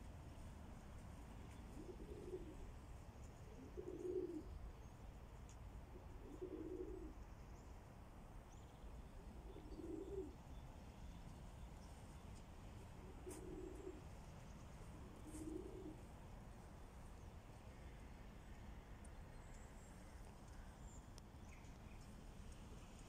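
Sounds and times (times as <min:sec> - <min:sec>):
pigeons cooing: 0:01.5 - 0:02.8, 0:03.5 - 0:04.6, 0:05.9 - 0:07.2, 0:09.4 - 0:10.4, 0:13.0 - 0:14.1, 0:15.0 - 0:16.0.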